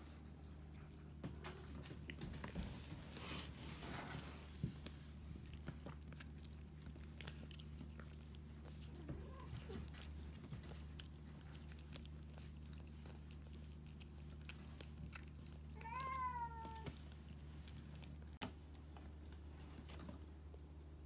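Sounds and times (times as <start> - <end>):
faint low hum: 0.0 - 21.0
cat meowing: 15.7 - 17.0.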